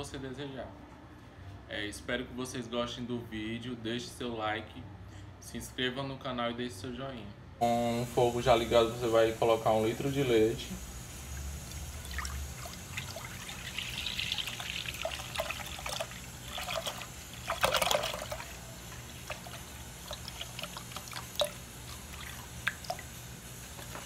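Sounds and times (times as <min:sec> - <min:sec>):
small drips: 0:11.2 - 0:24.0
milk pouring into metal pot: 0:11.6 - 0:24.0.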